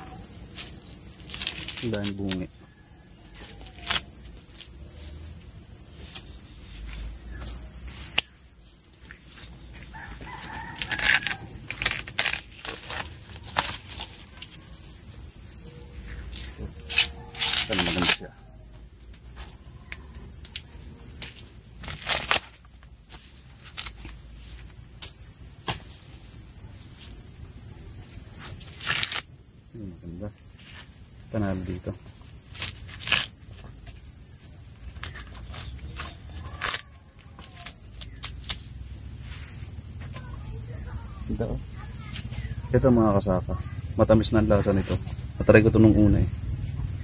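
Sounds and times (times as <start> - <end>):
insects chorus: 0.0 - 47.0
corn husks rustling: 0.5 - 2.5, 5.9 - 15.0, 16.1 - 18.3, 21.2 - 24.7, 30.6 - 39.7.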